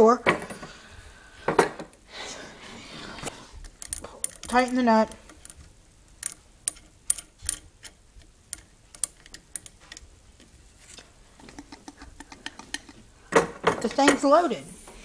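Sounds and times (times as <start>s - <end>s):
metal clicks and taps: 3.8s - 10.6s, 11.4s - 13.0s.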